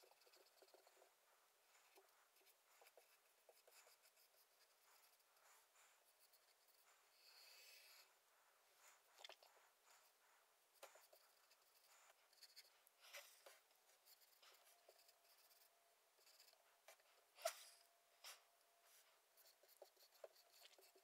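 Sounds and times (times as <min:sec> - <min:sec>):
marker pen writing on whiteboard: 0:00.0 - 0:00.9.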